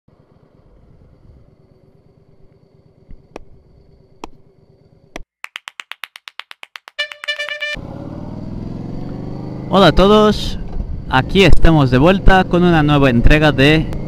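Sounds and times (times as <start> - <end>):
fast cartoon ticking: 5.4 - 7.8.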